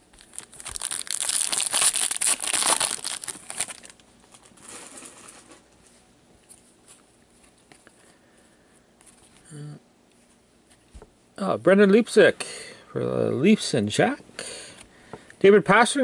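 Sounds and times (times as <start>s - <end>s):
cards rustling: 0.2s - 5.6s
wrapper tearing and crinkling: 0.2s - 5.6s.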